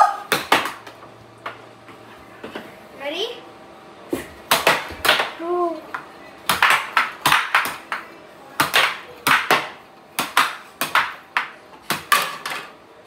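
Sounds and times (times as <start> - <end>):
plastic strikers smacking puck: 0.3 - 1.6, 4.5 - 12.8
puck knocking around table: 6.0 - 12.7.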